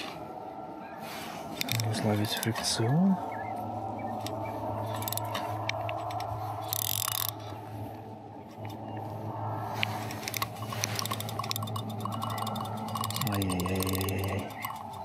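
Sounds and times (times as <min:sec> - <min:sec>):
steady low hum: 0:00.0 - 0:15.0
fishing reel clicking and scraping: 0:01.5 - 0:02.7, 0:04.2 - 0:07.6, 0:09.8 - 0:15.0.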